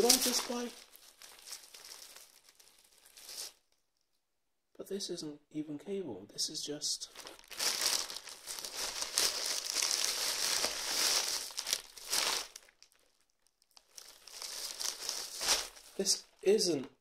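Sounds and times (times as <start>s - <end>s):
plastic bag crinkling and rustling: 0.0s - 3.7s, 7.1s - 16.4s.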